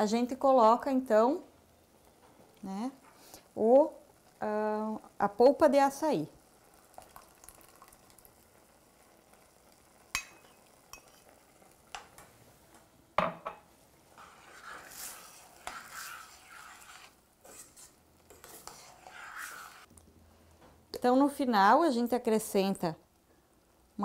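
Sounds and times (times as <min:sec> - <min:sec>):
faint sizzle of cooking rice: 0:00.0 - 0:19.9
spoon scraping pot: 0:10.2 - 0:11.4, 0:14.2 - 0:19.9.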